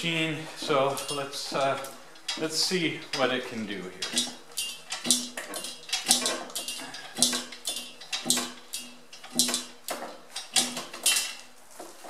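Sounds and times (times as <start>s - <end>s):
pallet jack clanking and squealing: 4.0s - 11.4s.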